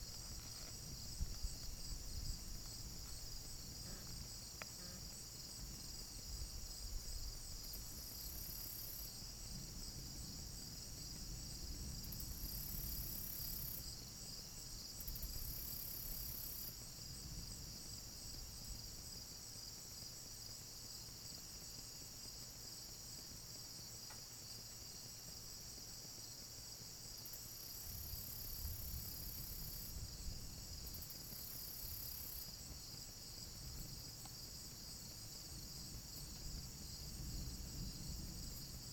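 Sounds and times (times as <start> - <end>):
high buzzing insect calls: 0.0 - 9.5
insects chirring: 0.0 - 38.9.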